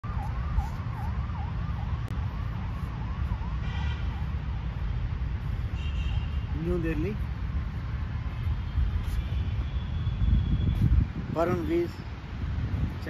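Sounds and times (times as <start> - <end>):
emergency siren yelping: 0.0 - 5.3.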